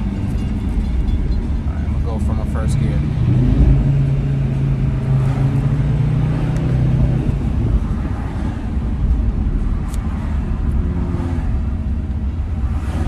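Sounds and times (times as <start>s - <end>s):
car engine from inside cabin: 0.0s - 13.0s
road rumble: 0.0s - 13.0s.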